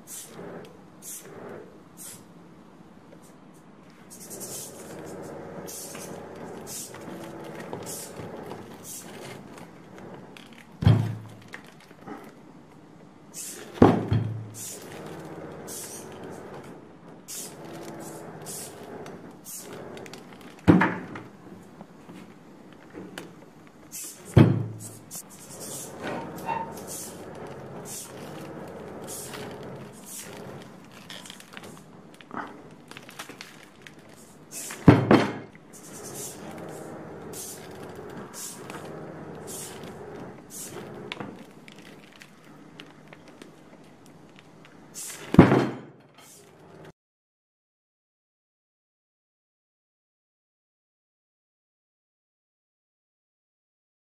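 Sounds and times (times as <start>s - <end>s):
short hissing bursts: 0.0s - 2.3s, 4.1s - 6.9s, 13.3s - 13.8s, 14.5s - 14.8s, 15.7s - 16.1s, 17.3s - 18.8s, 19.4s - 19.7s, 23.9s - 26.0s, 26.7s - 27.2s, 29.0s - 30.4s, 34.3s - 34.8s, 35.7s - 37.7s, 38.3s - 38.7s, 39.4s - 39.9s, 40.5s - 40.9s, 44.9s - 45.3s.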